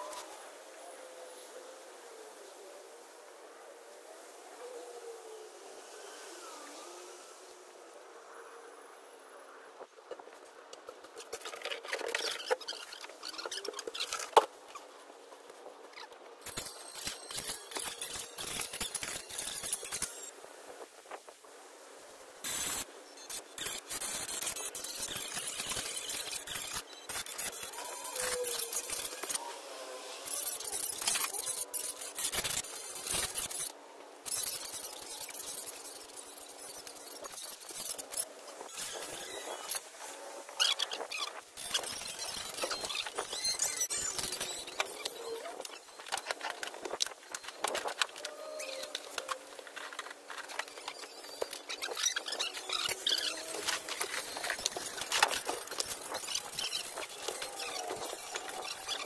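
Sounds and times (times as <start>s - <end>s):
outdoor background hiss: 0.0s - 59.0s
scraping and scratching: 10.0s - 20.3s, 22.5s - 29.4s, 34.3s - 59.0s.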